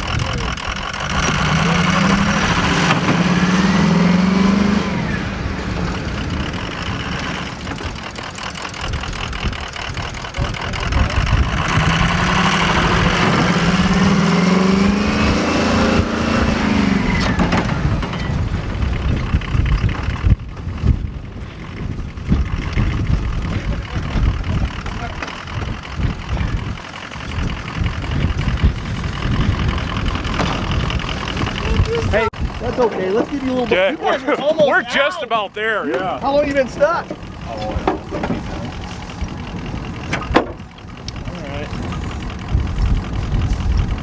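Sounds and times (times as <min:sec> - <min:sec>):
vehicle engines revving: 0:00.0 - 0:44.0.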